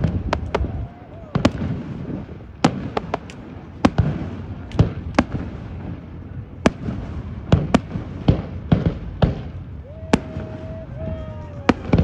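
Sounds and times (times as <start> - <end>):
low continuous rumble: 0.0 - 12.0
firework shells bursting: 1.3 - 9.6.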